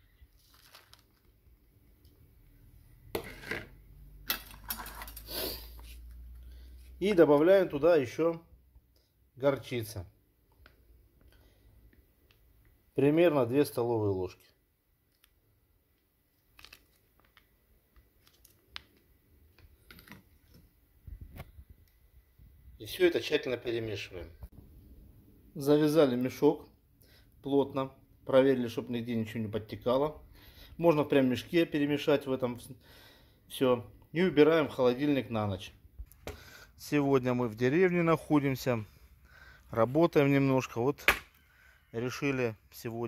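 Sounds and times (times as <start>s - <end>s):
plastic bag rustling: 0.2s - 1.5s.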